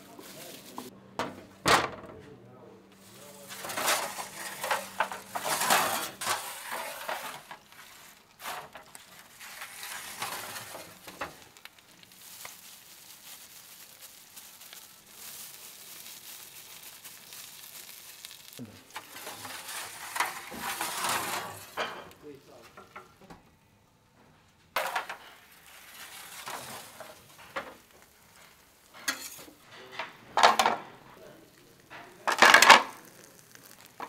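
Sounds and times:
fish sizzling: 3.0 - 22.4, 24.8 - 29.7, 30.4 - 34.0
cooking utensils scraping: 3.1 - 11.6, 18.8 - 23.4, 24.8 - 34.0.

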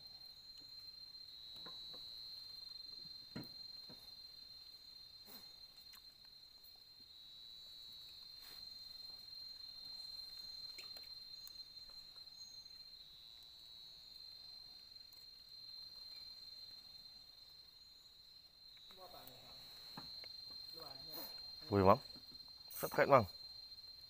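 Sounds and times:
high-pitched insect drone: 15.2 - 24.0.

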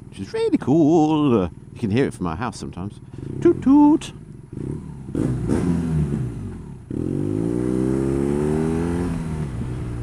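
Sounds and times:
motorcycle engine accelerating: 3.1 - 10.0.

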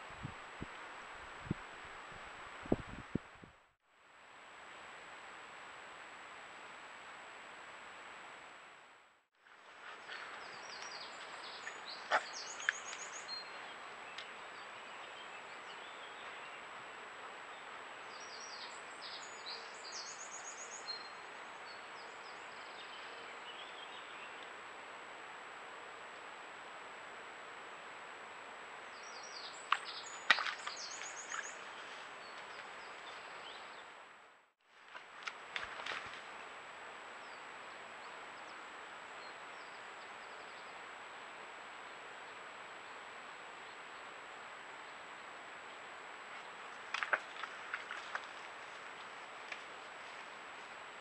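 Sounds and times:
microphone hiss: 0.0 - 47.0
outdoor ambience: 0.0 - 51.0
small birds chirping: 9.8 - 16.7, 17.5 - 24.5, 28.9 - 33.9.

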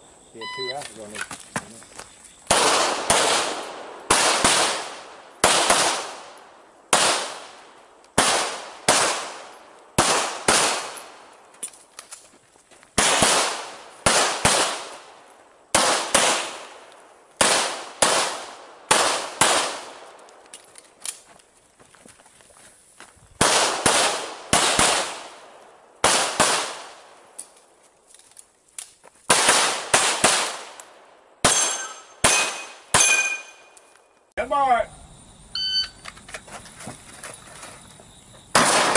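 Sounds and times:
pistol shots echoing: 2.5 - 11.3, 13.0 - 20.2, 23.4 - 27.4, 29.3 - 33.8, 38.5 - 38.9.

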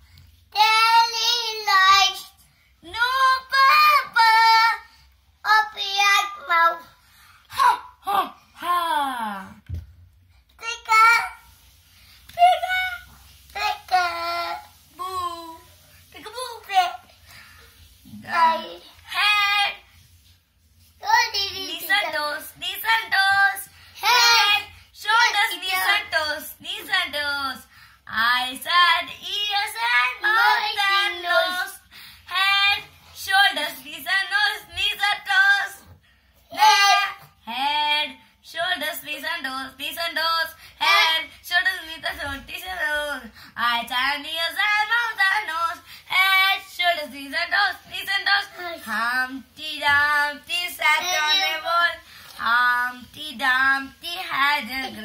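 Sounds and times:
boy singing: 0.5 - 6.8, 21.0 - 27.5, 28.1 - 35.9, 36.5 - 55.0.

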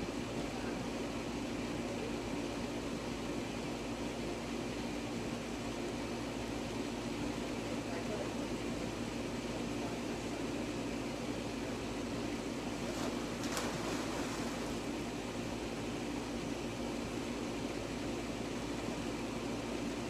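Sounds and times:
low rushing hum: 12.5 - 16.6
faint splash in pool: 12.8 - 14.9.

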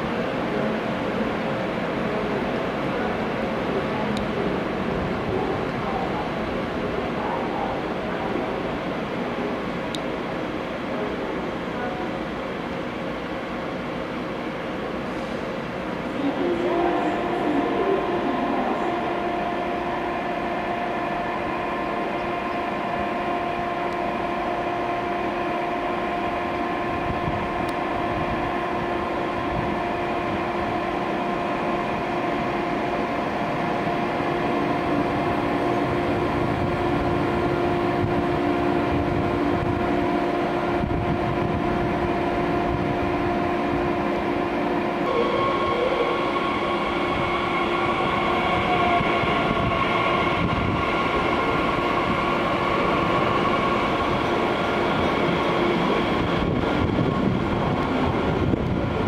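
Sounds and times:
electric train hum and whine: 0.0 - 59.0
train rumble: 0.0 - 59.0
higher whine: 16.2 - 59.0.

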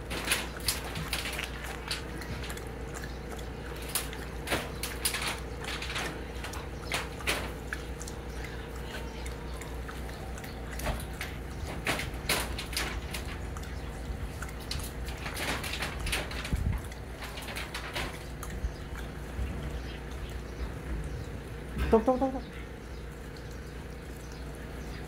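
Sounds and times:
dogs lapping water from metal bowl: 0.0 - 25.0.

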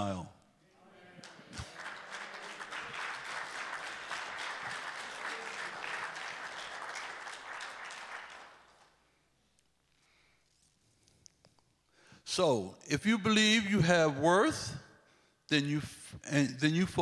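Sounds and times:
crowd applauding: 1.1 - 9.0.

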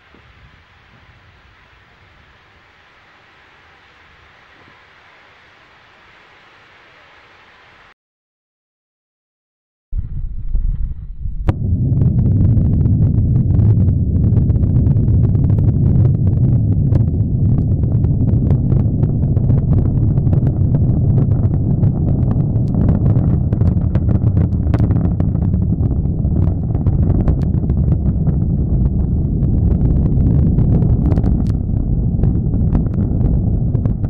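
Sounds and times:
rocket engines rumbling and crackling: 0.0 - 7.3, 10.0 - 34.0.

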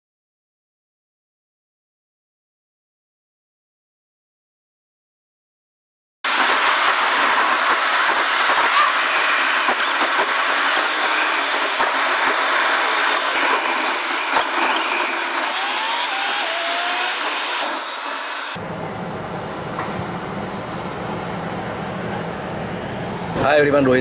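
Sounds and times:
car road noise: 9.4 - 23.6.

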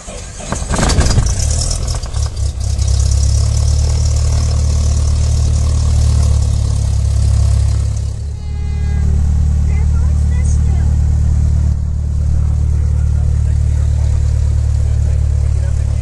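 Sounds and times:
starter cranking: 0.0 - 8.2
airplane piston engine idling: 0.0 - 16.0.

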